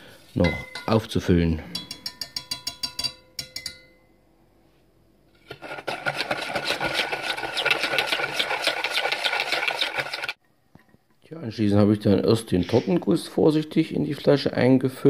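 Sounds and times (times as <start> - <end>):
whisk scraping in plastic jug: 5.4 - 10.4.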